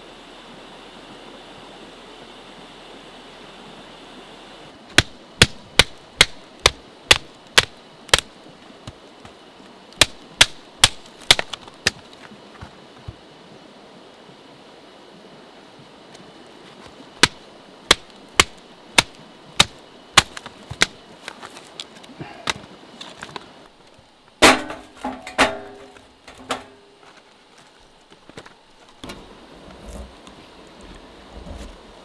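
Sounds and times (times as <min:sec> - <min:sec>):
sticks clattering onto metal: 0:24.4 - 0:26.9.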